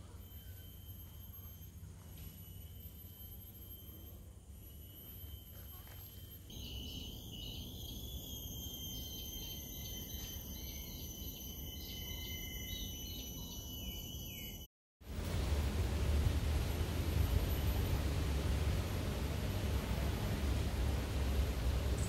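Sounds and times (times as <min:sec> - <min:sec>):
bird wavering whistle: 0:00.0 - 0:14.7
insects droning and trilling: 0:00.0 - 0:14.7.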